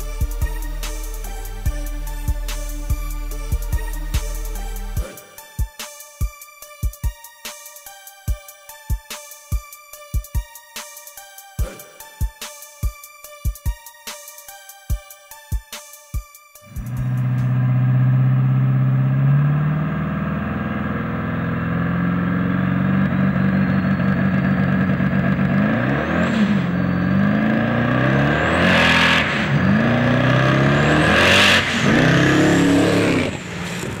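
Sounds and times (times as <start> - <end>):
car engine revving: 16.6 - 34.0
turbo whistle: 22.8 - 25.0.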